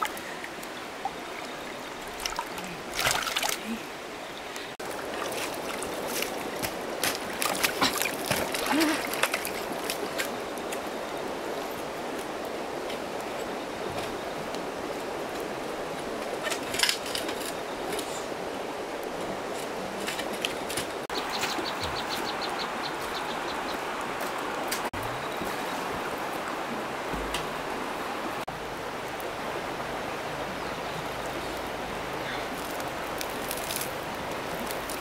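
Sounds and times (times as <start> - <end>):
flowing water rushing: 0.0 - 35.0
sharp splash: 2.2 - 3.8, 5.0 - 10.0.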